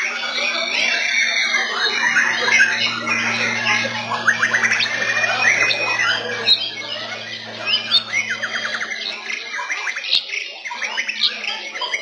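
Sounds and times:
steady low hum: 1.6s - 9.5s
songbirds trilling and whistling: 1.9s - 12.0s.

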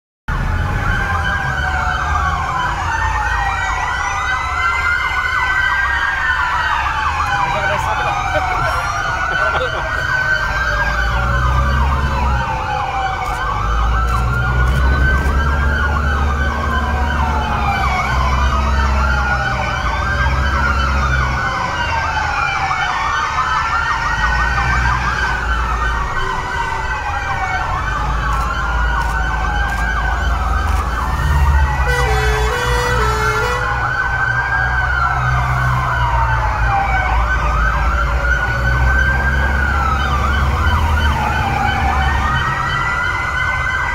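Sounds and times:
fire engine sirens wailing: 0.3s - 43.9s
diesel engines idling: 5.9s - 23.4s.

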